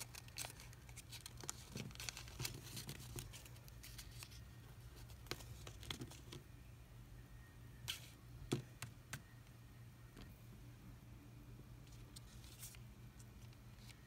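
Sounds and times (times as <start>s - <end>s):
paper crinkling: 0.0s - 4.4s
steady low hum: 0.0s - 14.0s.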